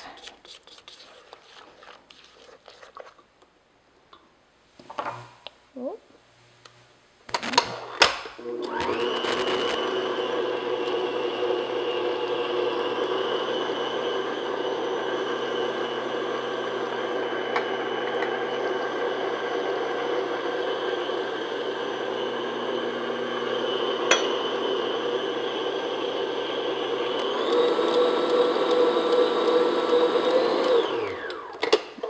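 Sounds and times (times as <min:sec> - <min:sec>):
stand mixer running: 0:08.4 - 0:31.7.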